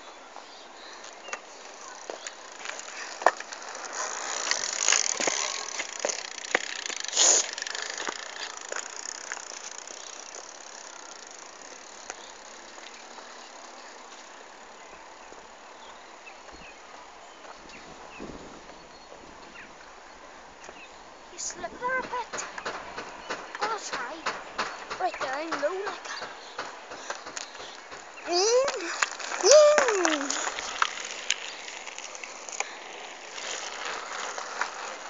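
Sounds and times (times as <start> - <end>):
bicycle tyres hissing on road: 0.0 - 35.0
bicycle freewheel ticking: 1.2 - 14.8, 22.1 - 35.0
sharp clicks and knocks: 22.0 - 28.1.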